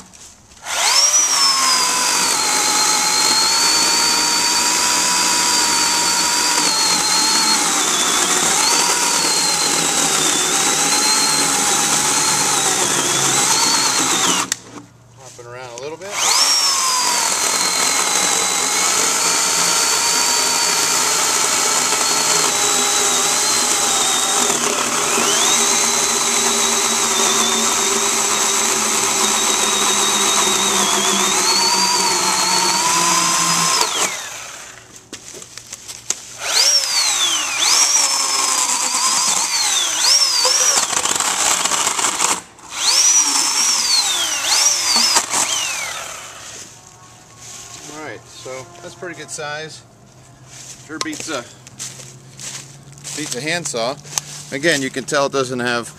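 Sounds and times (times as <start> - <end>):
electric chainsaw cutting log: 0.0 - 14.7, 16.0 - 35.0, 36.3 - 49.5, 50.9 - 55.8.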